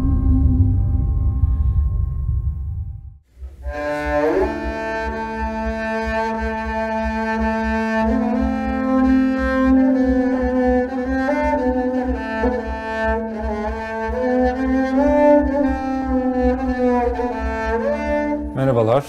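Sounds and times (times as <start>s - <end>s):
bowed lute sustained notes: 3.4s - 19.0s.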